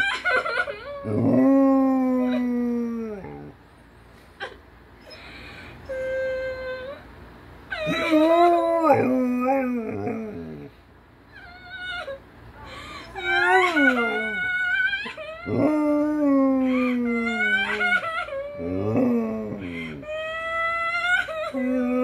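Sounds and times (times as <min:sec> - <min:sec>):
dog whining: 0:00.0 - 0:03.5, 0:04.4 - 0:07.1, 0:07.7 - 0:10.7, 0:11.3 - 0:22.0
recorded human crying: 0:11.8 - 0:22.0.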